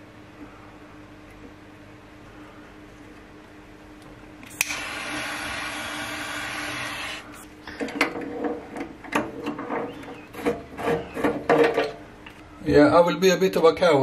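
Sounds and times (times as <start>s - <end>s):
faint steady hum: 0.0s - 14.0s
steady whirring: 4.5s - 7.5s.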